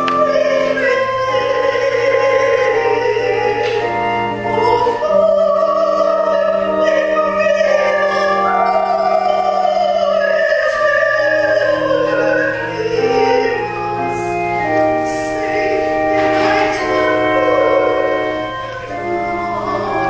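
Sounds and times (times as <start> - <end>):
slow music with held notes: 0.0 - 20.0.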